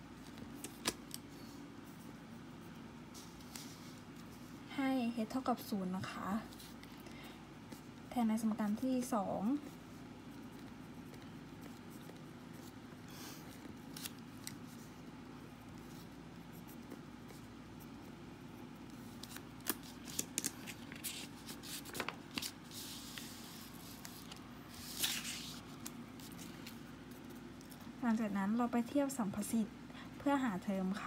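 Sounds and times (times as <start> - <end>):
low steady hum: 0.0 - 31.0
paper sheets rustling: 19.1 - 27.4.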